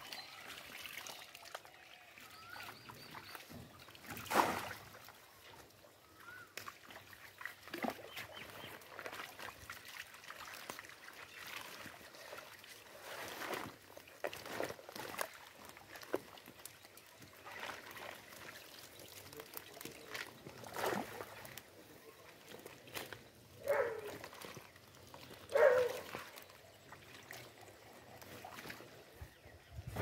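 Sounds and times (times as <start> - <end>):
water trickling: 0.0 - 29.0
fish splashing and flapping: 6.3 - 29.1.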